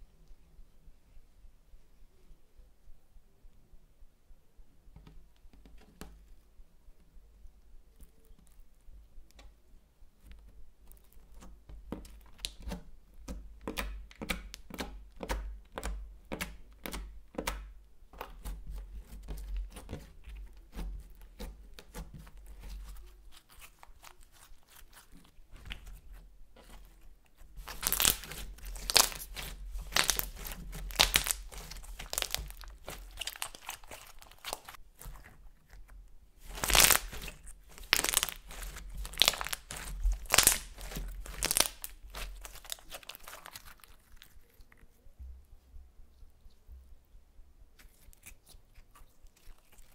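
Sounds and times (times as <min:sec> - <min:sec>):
slime squeezed sticky clicks: 0:27.6 - 0:35.1.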